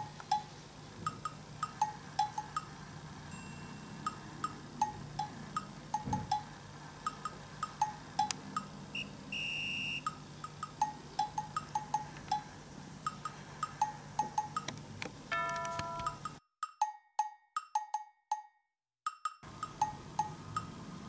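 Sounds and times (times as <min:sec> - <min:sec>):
wood-block and cowbell percussion music: 0:00.0 - 0:08.8, 0:10.1 - 0:14.7, 0:15.3 - 0:20.8
bell-like chime: 0:03.3 - 0:04.2, 0:15.3 - 0:16.4
electronic beep: 0:09.0 - 0:10.1.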